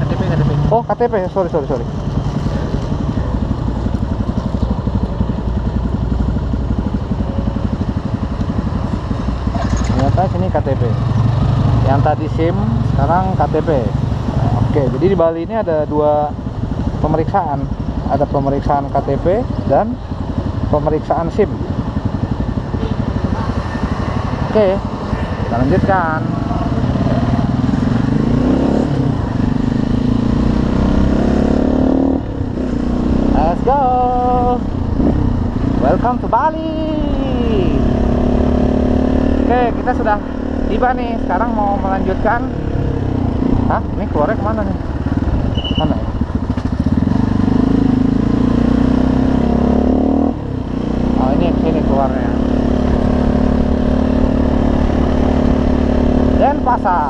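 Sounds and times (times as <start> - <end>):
motorcycle engine idling: 1.0 - 28.2, 39.5 - 48.0.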